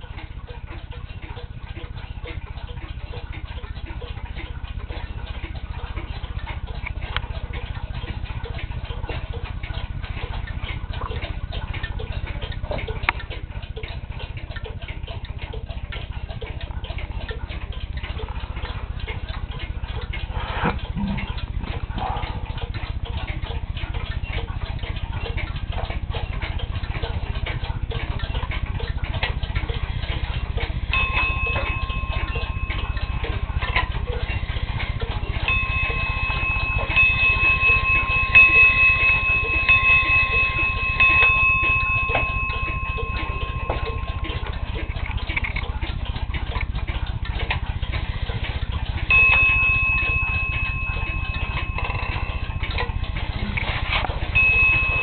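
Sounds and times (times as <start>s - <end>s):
pendulum clock ticking: 0.0s - 55.0s
steady high whine: 30.9s - 45.6s.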